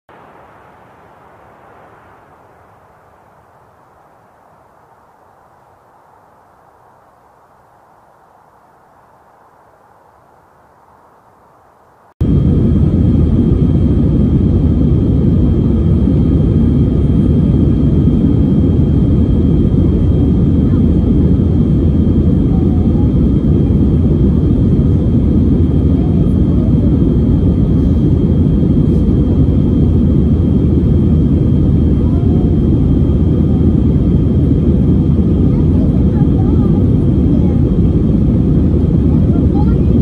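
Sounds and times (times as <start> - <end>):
high steady whine: 0.1 - 40.0
airliner cabin rumble: 12.2 - 40.0.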